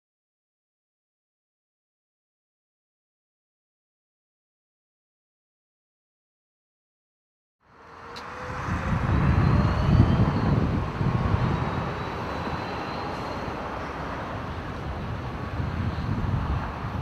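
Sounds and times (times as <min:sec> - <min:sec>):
distant traffic rumble: 0:07.6 - 0:17.0
wind buffeting microphone: 0:07.9 - 0:17.0.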